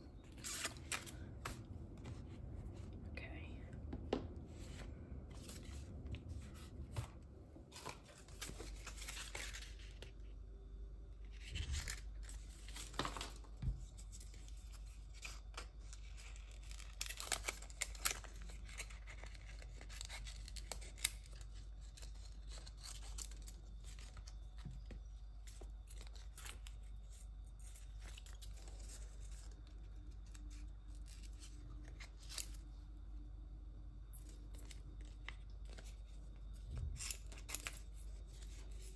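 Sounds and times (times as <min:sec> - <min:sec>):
plastic tape crinkling: 0:14.3 - 0:24.5.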